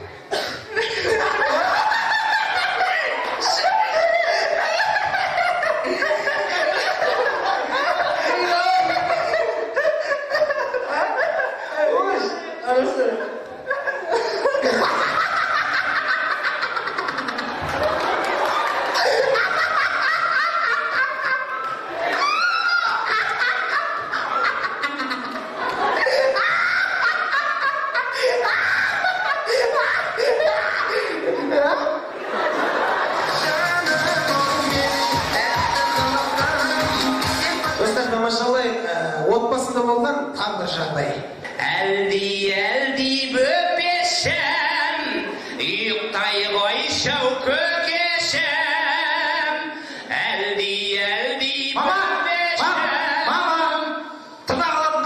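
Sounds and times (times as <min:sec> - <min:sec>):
people laughing: 0:00.0 - 0:39.1, 0:43.4 - 0:50.5
people talking: 0:04.8 - 0:09.6, 0:11.4 - 0:15.3, 0:37.6 - 0:47.6.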